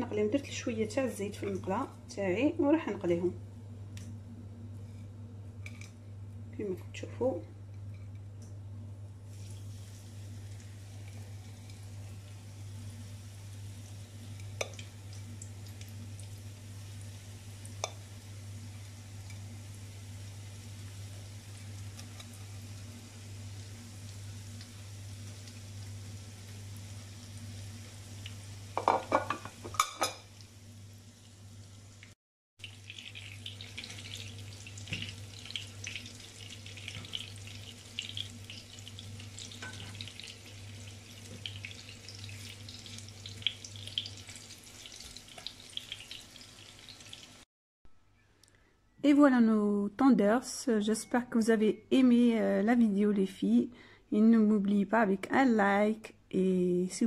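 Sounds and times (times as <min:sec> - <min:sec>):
chicken sizzling in frying pan: 0:09.2 - 0:47.5.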